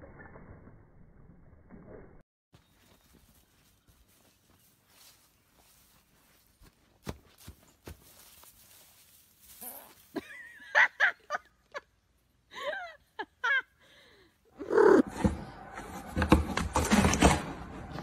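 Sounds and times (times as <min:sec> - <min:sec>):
person laughing: 0:10.1 - 0:11.9.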